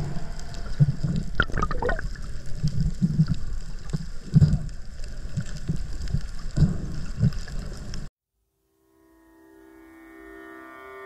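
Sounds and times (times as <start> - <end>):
underwater water sloshing and gurgling: 0.0 - 8.1.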